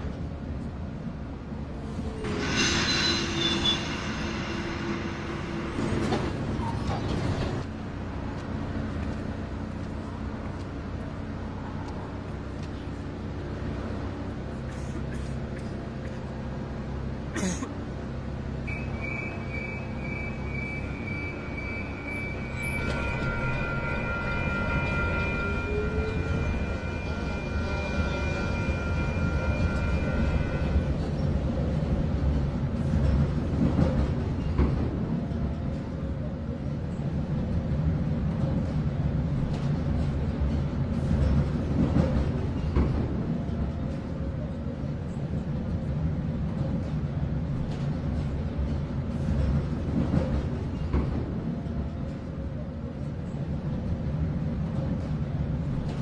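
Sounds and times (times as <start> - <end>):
train car rumble: 0.0 - 56.0.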